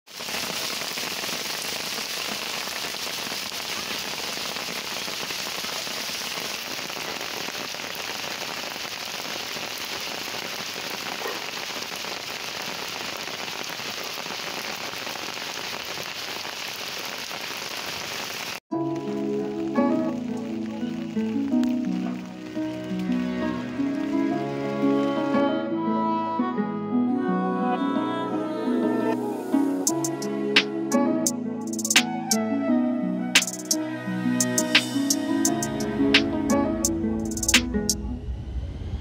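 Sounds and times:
rain on pavement: 0.1 - 25.3, 29.8 - 30.7, 31.6 - 32.4, 33.3 - 33.8, 34.4 - 36.3, 37.2 - 38.0.

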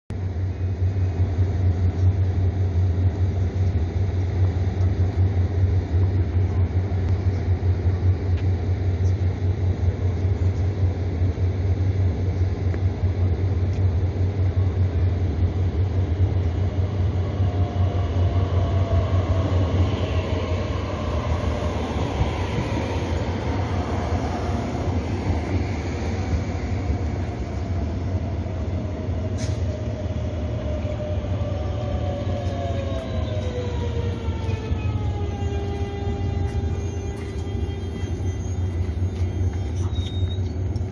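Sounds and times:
constant low rumble: 0.1 - 40.9
train rolling noise: 0.1 - 40.9
traction motors whining: 15.7 - 40.9.

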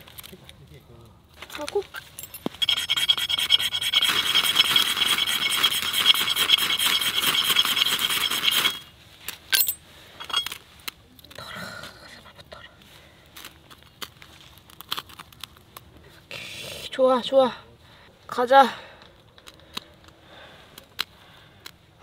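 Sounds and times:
fire-starter rod rasping scrapes: 2.4 - 8.9.

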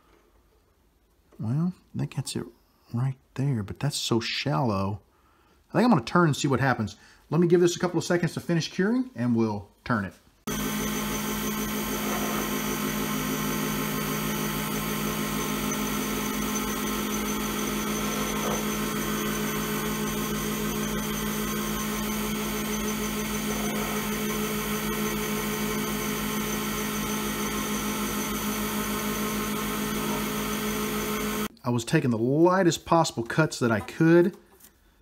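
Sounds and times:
lathe motor humming: 10.5 - 31.5.

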